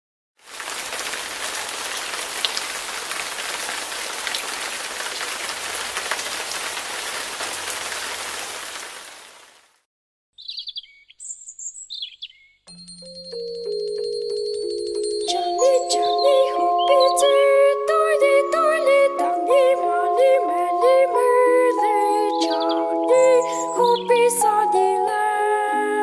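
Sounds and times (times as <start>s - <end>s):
steady rain with drop ticks: 0.4s - 9.8s
bird chirping: 10.4s - 17.4s, 22.0s - 24.5s
music: 12.7s - 26.0s.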